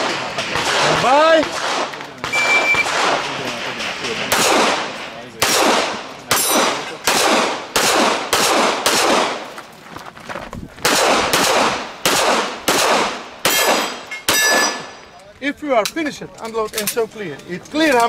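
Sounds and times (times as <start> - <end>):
handgun shots echoing: 0.0 - 9.4, 10.8 - 14.9
bullets ringing on steel plates: 6.3 - 7.0, 13.5 - 15.0.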